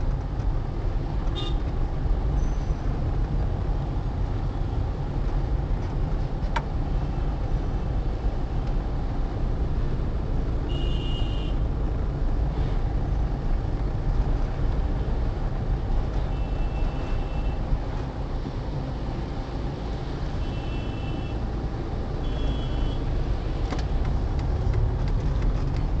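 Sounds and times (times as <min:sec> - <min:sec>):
traffic rumble on wet road: 0:00.0 - 0:26.0
car horn toots: 0:10.7 - 0:11.6, 0:22.2 - 0:23.0.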